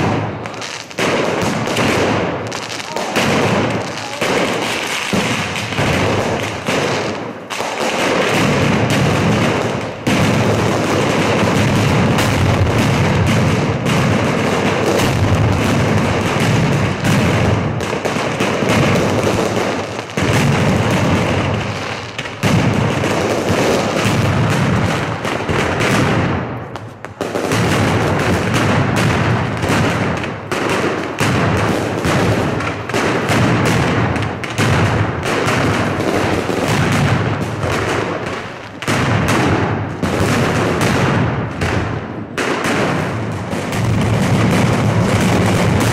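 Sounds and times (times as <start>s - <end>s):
firecrackers crackling: 0.0s - 45.9s
heavy firework booms: 0.0s - 45.9s.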